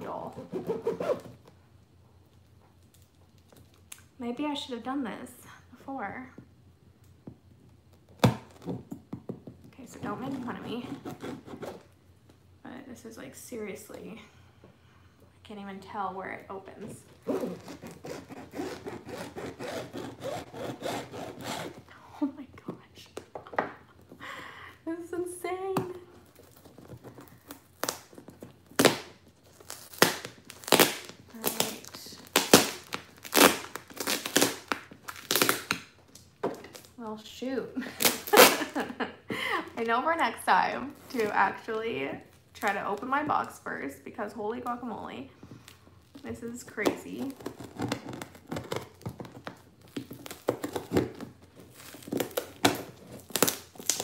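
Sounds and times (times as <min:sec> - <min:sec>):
packing tape ripping from cardboard: 0:00.0 - 0:01.5, 0:17.0 - 0:21.9, 0:26.2 - 0:37.0, 0:37.8 - 0:38.9, 0:45.6 - 0:54.0
knife sawing through tape: 0:00.2 - 0:01.3, 0:10.3 - 0:11.9, 0:17.2 - 0:21.8.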